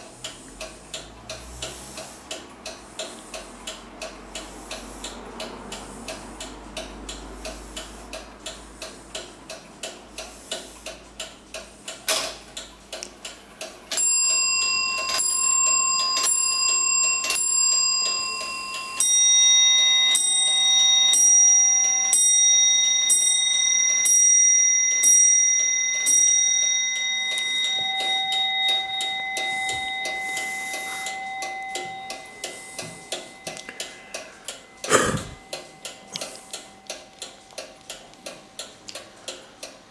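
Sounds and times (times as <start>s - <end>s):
clock ticking quickly: 0.0s - 39.9s
clock bell striking: 13.9s - 38.5s
lower-pitched clock bell ringing: 13.9s - 38.6s.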